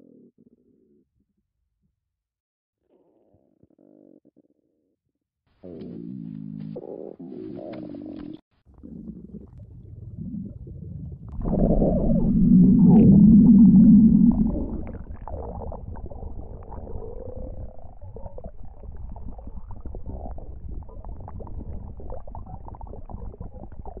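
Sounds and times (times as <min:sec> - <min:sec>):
low crackly gurgling rumble: 0:07.5 - 0:24.0
short rising tone: 0:11.4 - 0:15.1.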